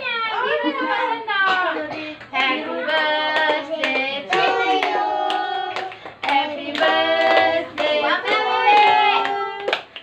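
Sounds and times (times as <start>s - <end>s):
women and children singing: 1.5s - 9.9s
hands clapping: 2.2s - 10.0s.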